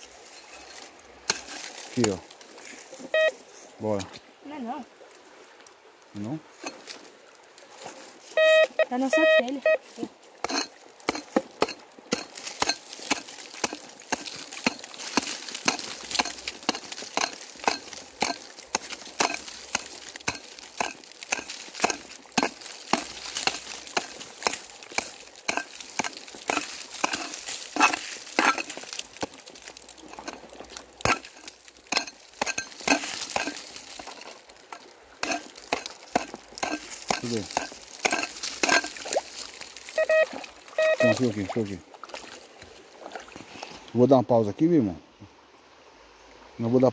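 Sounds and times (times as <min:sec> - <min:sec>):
hand tool digging sandy soil: 0:00.0 - 0:03.3, 0:07.9 - 0:41.8.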